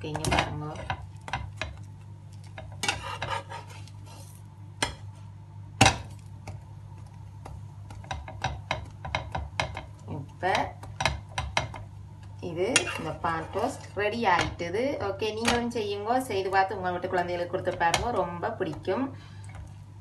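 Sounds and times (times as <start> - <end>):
metal spatula scraping pan: 2.8 - 3.9.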